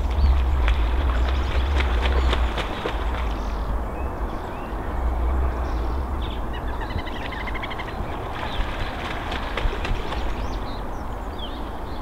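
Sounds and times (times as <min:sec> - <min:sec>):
swan splashing water: 0:00.0 - 0:03.6, 0:08.1 - 0:10.6
steady low rumble: 0:00.0 - 0:11.4.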